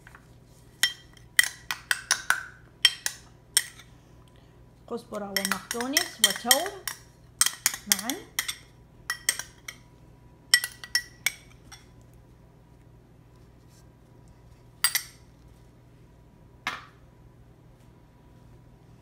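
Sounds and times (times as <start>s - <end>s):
utensil clinking glass bowl: 0.8s - 3.9s, 5.3s - 9.8s, 10.5s - 11.9s.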